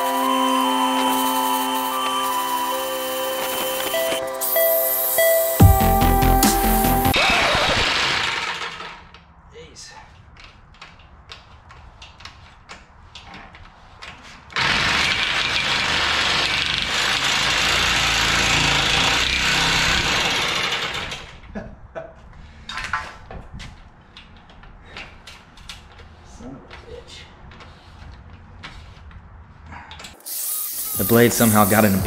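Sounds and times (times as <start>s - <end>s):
reciprocating saw motor running: 0.0s - 9.0s, 14.6s - 21.2s, 30.2s - 32.0s
saw clicking and rattling: 7.8s - 9.3s, 14.6s - 21.5s.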